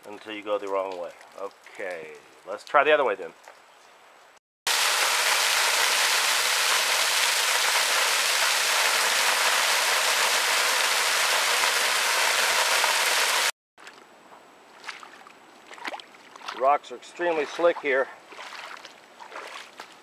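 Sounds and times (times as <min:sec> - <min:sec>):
water rushing over rocks: 0:04.7 - 0:13.5.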